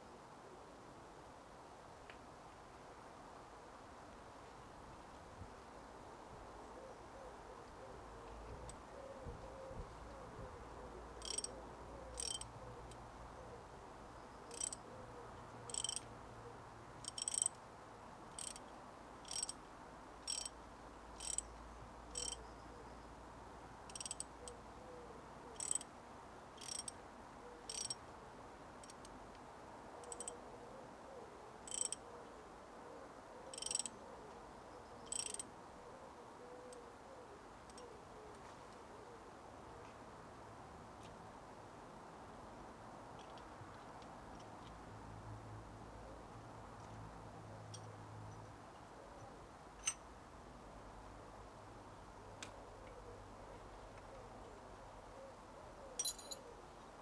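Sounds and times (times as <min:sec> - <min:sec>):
ratchet wrench clicking: 0:11.2 - 0:11.5, 0:12.2 - 0:12.5, 0:14.5 - 0:14.8, 0:15.7 - 0:16.0, 0:17.0 - 0:17.5, 0:18.4 - 0:18.6, 0:19.2 - 0:19.6, 0:20.3 - 0:20.6, 0:21.2 - 0:21.5, 0:22.1 - 0:22.4, 0:23.9 - 0:24.3, 0:25.6 - 0:25.9, 0:26.6 - 0:26.9, 0:27.7 - 0:28.0, 0:30.0 - 0:30.3, 0:31.7 - 0:32.0, 0:33.5 - 0:33.9, 0:35.1 - 0:35.4.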